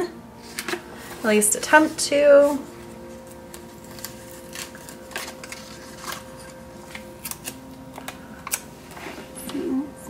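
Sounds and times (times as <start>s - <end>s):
faint steady hum: 0.0s - 10.0s
paper rustling: 2.4s - 7.6s.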